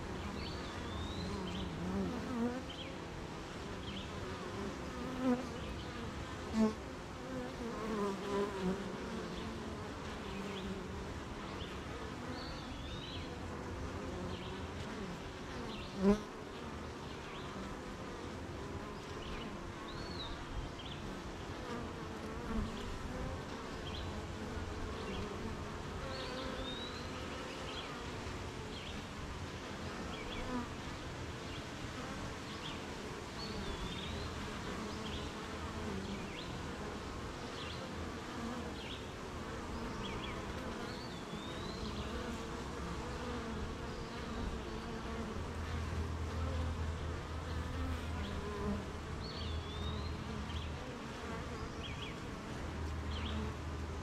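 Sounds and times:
bees buzzing: 0.0 - 54.0.

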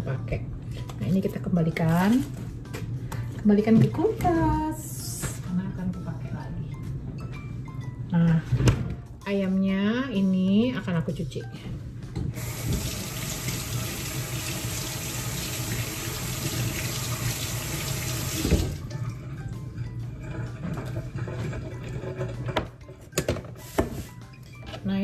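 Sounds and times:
tap water running into sink: 12.4 - 18.9.

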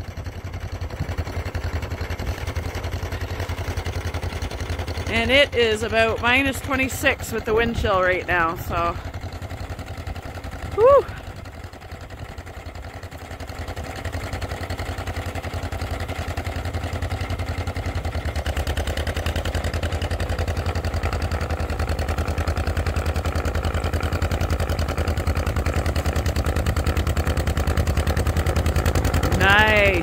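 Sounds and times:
tractor engine running: 0.0 - 30.0.

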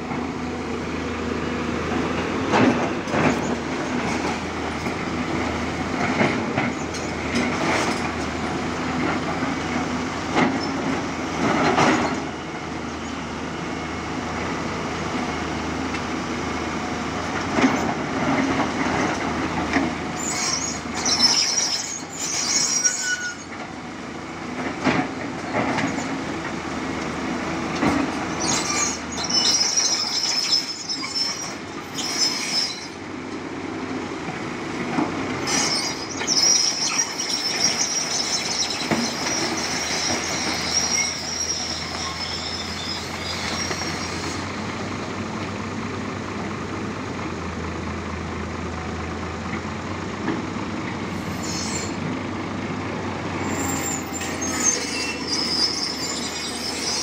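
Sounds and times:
excavator diesel engine running: 0.0 - 57.0
high squeals: 20.2 - 23.5, 28.3 - 33.0, 35.4 - 44.5, 53.4 - 57.0.

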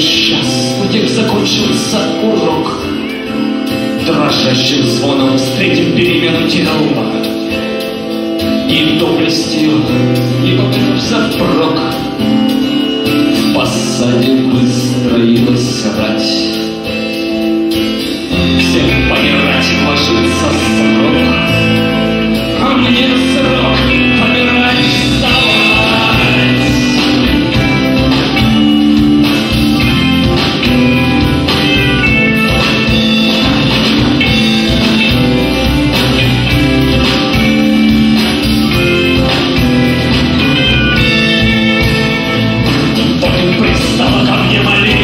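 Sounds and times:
acoustic and electric guitars: 0.0 - 45.0
drum kit: 0.0 - 45.0
electric bass: 0.0 - 45.0.

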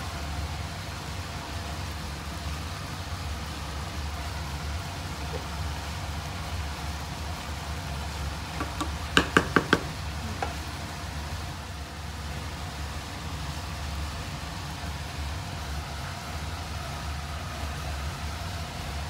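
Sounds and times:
wooden spoon knocking metal pot: 8.6 - 10.0.

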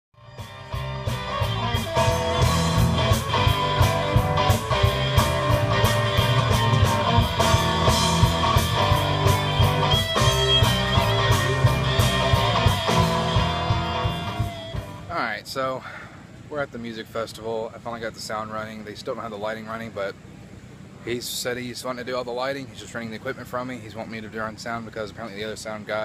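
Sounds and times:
live rock band playing: 0.2 - 15.1.

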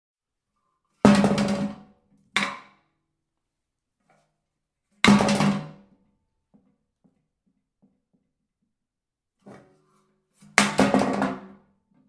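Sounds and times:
metal cans clattering into a bin: 1.1 - 1.8, 10.4 - 11.6.

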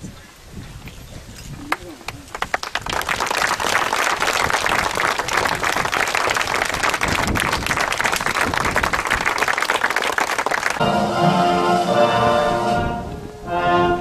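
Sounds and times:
crowd applauding: 1.7 - 10.8.

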